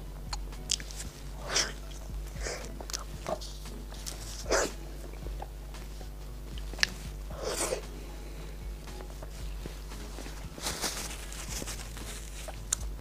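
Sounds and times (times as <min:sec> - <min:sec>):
soft chewing: 0:00.2 - 0:13.0
short breathy puffs: 0:06.6 - 0:12.7.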